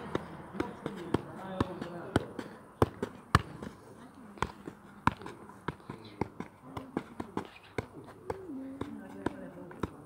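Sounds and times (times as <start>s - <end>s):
football knocked by feet: 0.1s - 3.7s.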